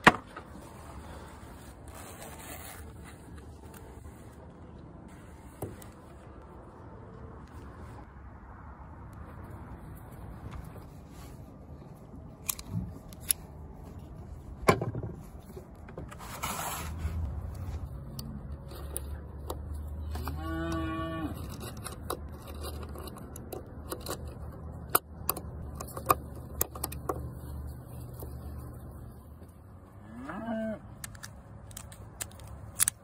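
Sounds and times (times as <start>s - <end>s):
cow mooing: 20.2s - 21.4s, 30.0s - 30.8s.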